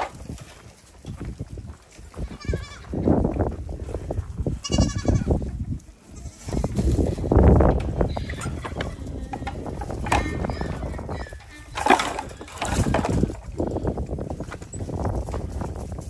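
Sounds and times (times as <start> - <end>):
goats bleating: 2.2 - 3.0, 4.6 - 7.3, 7.9 - 13.3.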